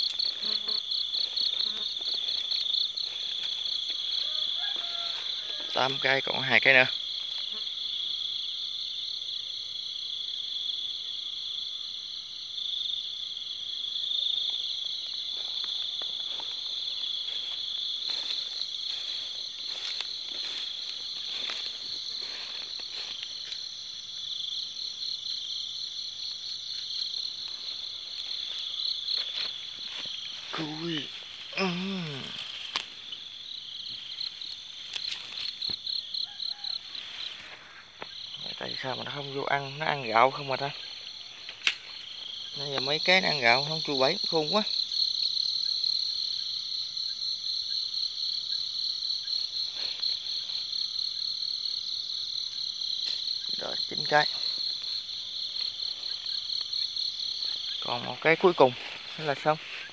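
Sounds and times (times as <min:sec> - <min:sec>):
rustling in grass: 0:00.0 - 0:06.0, 0:14.4 - 0:24.2, 0:26.0 - 0:43.1, 0:49.2 - 0:59.9
soft footsteps through grass: 0:00.0 - 0:08.2, 0:13.9 - 0:44.9, 0:47.8 - 0:59.9
crickets chirping: 0:00.0 - 0:59.9.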